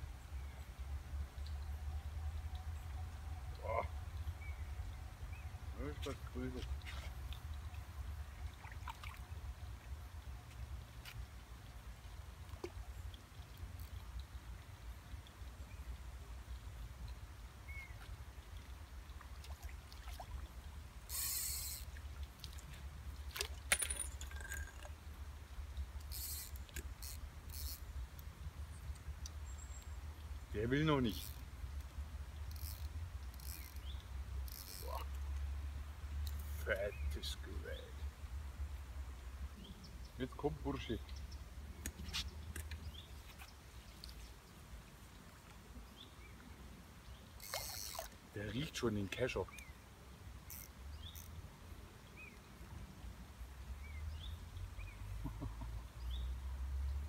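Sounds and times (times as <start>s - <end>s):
fishing tackle clicks and rasps: 21.0s - 22.7s, 23.4s - 25.0s, 26.0s - 28.3s, 31.1s - 35.4s, 36.2s - 36.6s, 47.4s - 48.2s, 50.4s - 51.4s.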